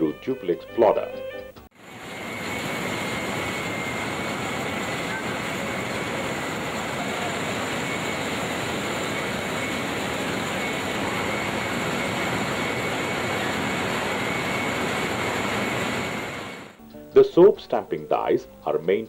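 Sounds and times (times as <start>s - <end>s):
faint steady whine: 0.0s - 18.9s
factory machinery running: 1.8s - 16.8s.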